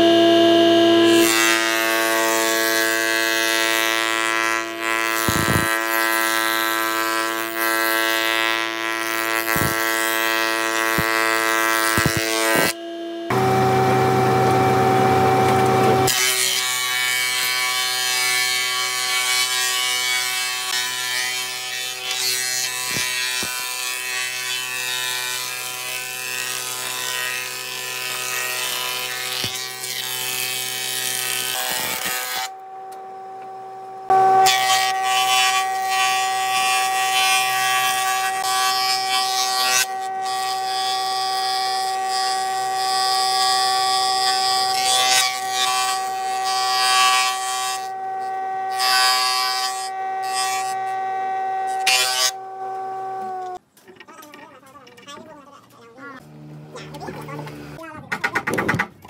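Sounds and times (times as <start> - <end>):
woodworking machine motor whine: 0.0 - 5.9, 8.6 - 19.5, 20.7 - 53.6, 56.2 - 57.8
sawing wood: 1.0 - 12.8, 15.8 - 32.6, 34.1 - 52.6.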